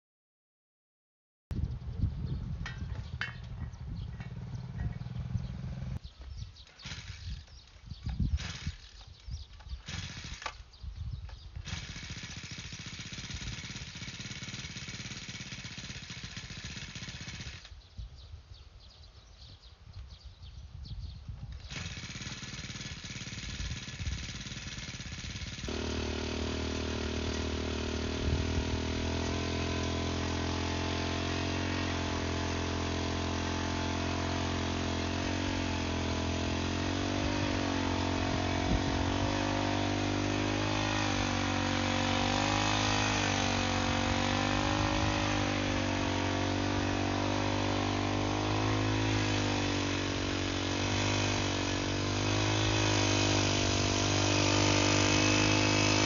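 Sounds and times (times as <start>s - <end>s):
brush cutter engine revving: 6.7s - 10.8s, 11.6s - 17.8s, 21.6s - 56.0s
paddle mixing soil and cement: 21.7s - 56.0s.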